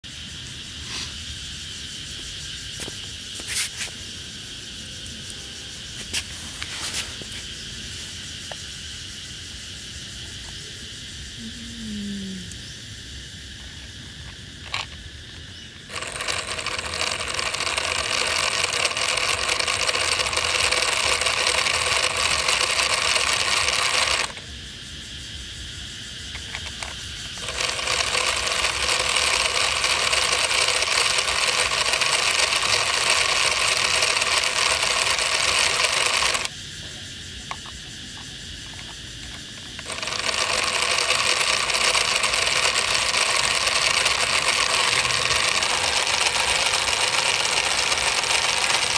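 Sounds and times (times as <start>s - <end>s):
model engine whirring rattle: 13.6s - 24.4s, 26.3s - 36.5s, 38.6s - 48.9s.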